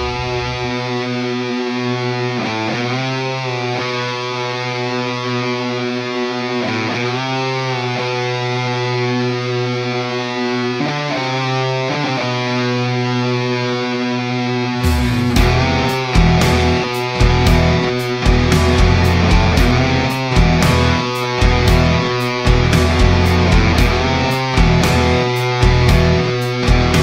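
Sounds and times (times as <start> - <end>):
rock music with distorted guitar: 0.0 - 27.0.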